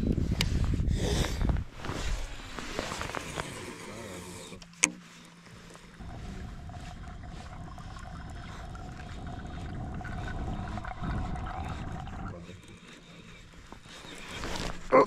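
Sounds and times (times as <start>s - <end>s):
faint steady hum: 0.0s - 15.0s
muffled underwater rumble: 6.0s - 15.0s.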